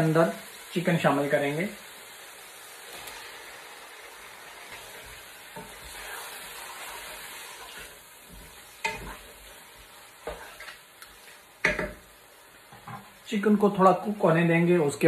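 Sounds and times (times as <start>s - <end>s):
chicken sizzling in oil: 0.0s - 15.0s
wooden spoon knocking pan: 11.6s - 12.1s.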